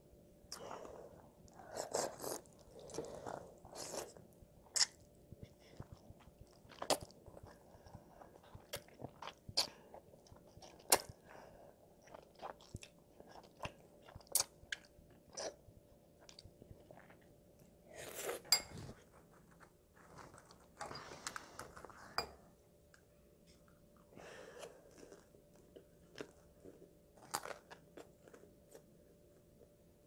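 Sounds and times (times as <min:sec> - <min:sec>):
child chewing noodles: 0:00.5 - 0:17.3, 0:23.6 - 0:28.9.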